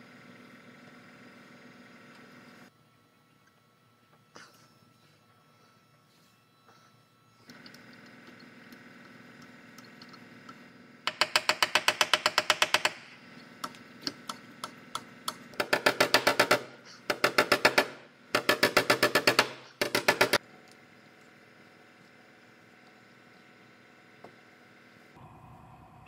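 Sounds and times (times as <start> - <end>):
rapid ratchet clicking: 11.1 - 20.4.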